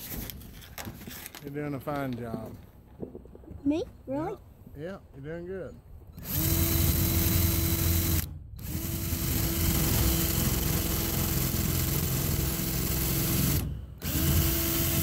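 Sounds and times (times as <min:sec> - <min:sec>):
cordless drill driving screw into metal: 0:06.2 - 0:15.0.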